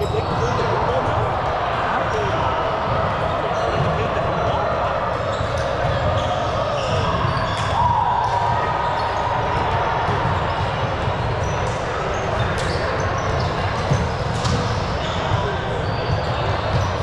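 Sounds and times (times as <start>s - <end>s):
players' voices: 0.0s - 17.0s.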